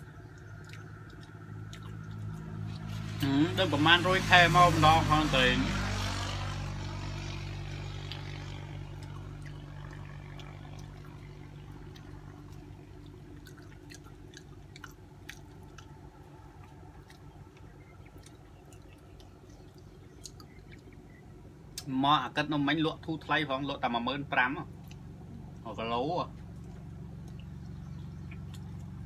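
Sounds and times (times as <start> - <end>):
people chewing and lip-smacking: 0.0 - 3.3, 7.9 - 21.9, 24.7 - 25.6, 26.3 - 29.0
low engine hum: 0.0 - 29.0.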